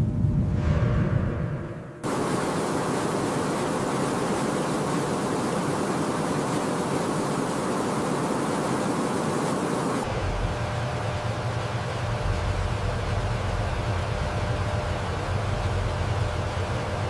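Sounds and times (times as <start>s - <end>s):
steady rushing hiss: 2.0s - 14.2s.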